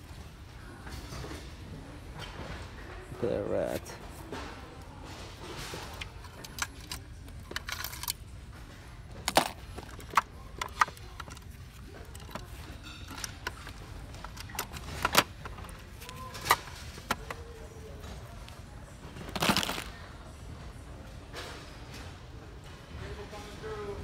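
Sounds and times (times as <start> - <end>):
metal tackle clinking in plastic trays: 5.6 - 8.2, 9.2 - 17.5.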